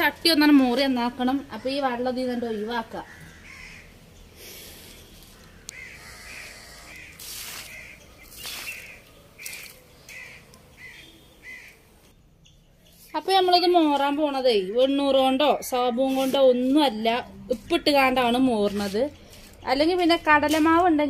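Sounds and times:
crows cawing: 3.0s - 4.0s, 5.2s - 8.1s, 9.4s - 11.8s
water splashing on ground: 6.9s - 9.8s.

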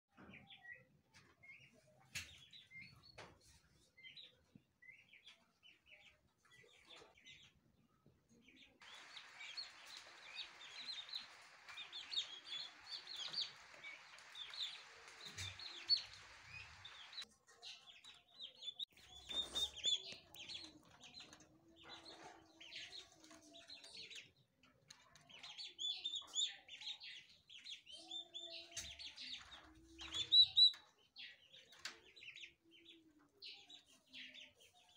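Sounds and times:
turkey poults peeping: 8.8s - 17.3s.

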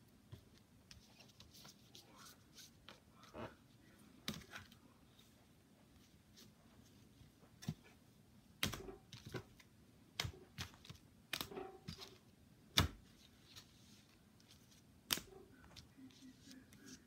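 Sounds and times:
cards clicking and tapping: 8.6s - 13.0s, 15.1s - 17.0s.

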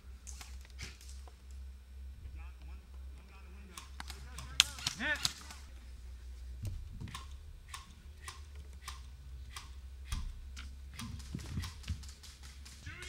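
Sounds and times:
muffled voice: 2.2s - 5.7s
rifle handling clicks: 3.8s - 5.7s.

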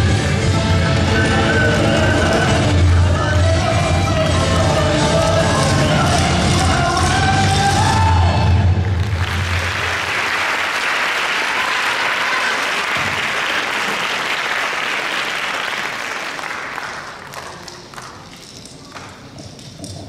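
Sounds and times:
dance music: 0.0s - 9.9s
audience applauding: 8.8s - 19.1s.

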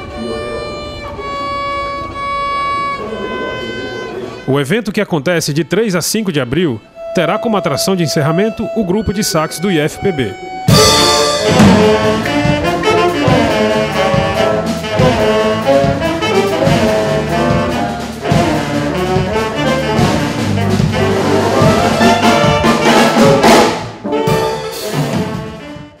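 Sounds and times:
saxophone ensemble: 0.0s - 26.0s
bass line: 9.7s - 25.7s.

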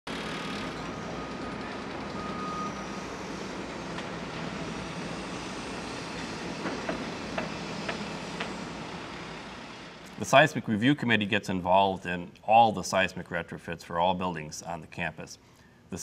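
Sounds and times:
sharp knocks: 6.6s - 8.5s.

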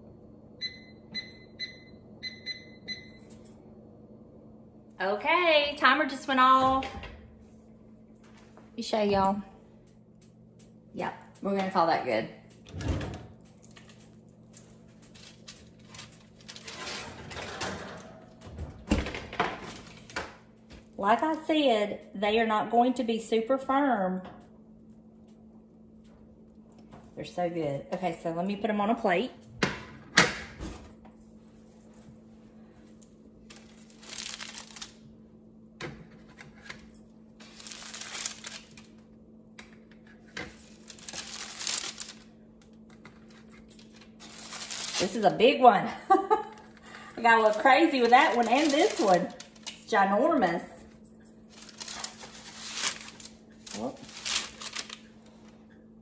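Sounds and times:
rustling handling noises: 13.4s - 17.1s, 31.1s - 35.0s, 36.1s - 39.0s, 39.6s - 45.4s, 46.6s - 50.0s, 50.9s - 55.6s
parchment paper crinkling: 13.5s - 16.8s, 33.4s - 35.0s, 37.4s - 39.0s, 40.0s - 45.3s, 47.2s - 49.9s, 51.5s - 55.6s
baking sheet scraping oven rack: 15.7s - 18.4s.

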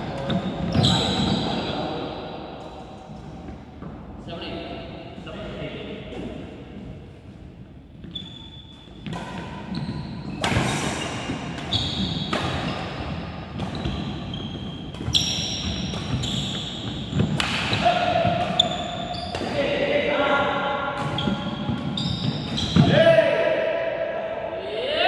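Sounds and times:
rackets hitting shuttlecock: 8.9s - 19.8s, 20.8s - 23.0s.

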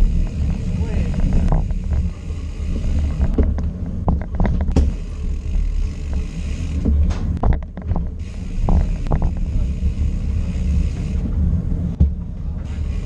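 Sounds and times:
wind buffeting microphone: 0.0s - 4.9s
bicycle rolling on concrete: 0.0s - 13.0s
bike rattling over bumps: 0.0s - 13.0s.

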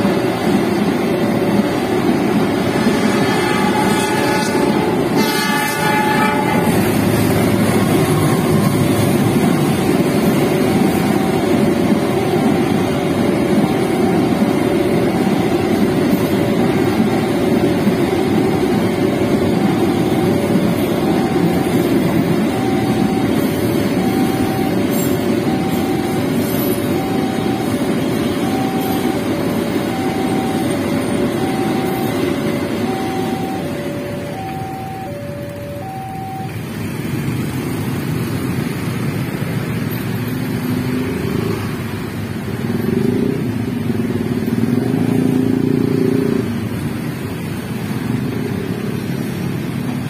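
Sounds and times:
freight train rumbling past: 0.0s - 50.0s
level-crossing alarm two tones: 0.4s - 36.8s
motorcycle and car engines revving: 36.7s - 50.0s.

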